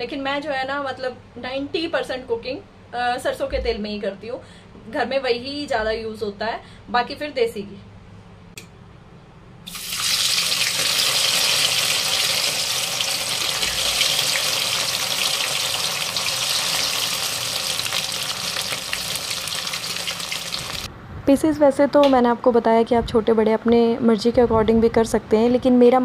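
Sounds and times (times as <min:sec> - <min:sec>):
food sizzling in hot oil: 0:09.7 - 0:20.9.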